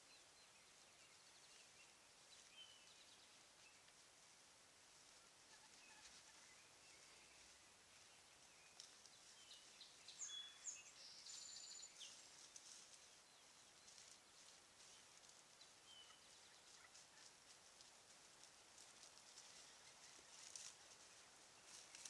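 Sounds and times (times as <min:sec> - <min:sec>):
bird chirps: 0:05.6 - 0:14.2, 0:14.8 - 0:17.3.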